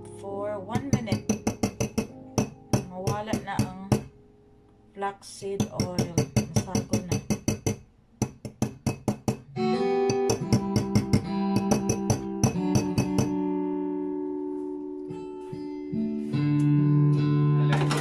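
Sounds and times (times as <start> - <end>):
guitar music from speaker: 0.0 - 4.8, 9.5 - 18.0.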